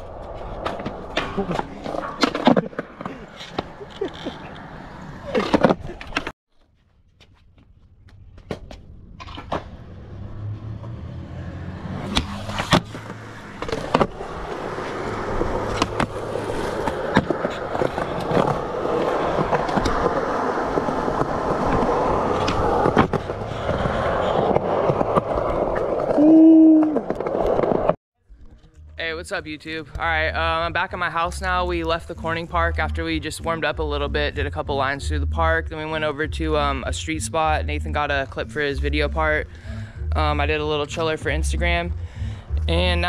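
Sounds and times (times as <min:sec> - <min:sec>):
skateboard wheels rolling on concrete: 0:00.0 - 0:28.0
skateboard clacking on ground: 0:12.6 - 0:26.2.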